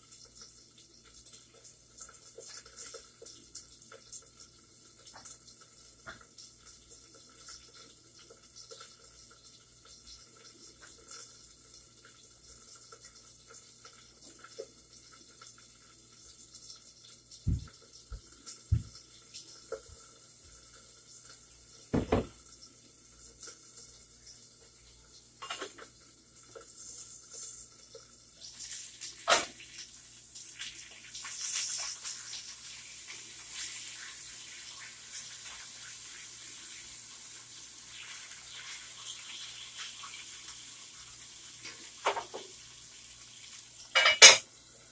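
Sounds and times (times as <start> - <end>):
pots or dishes knocking: 22.0 - 22.3, 44.0 - 44.4.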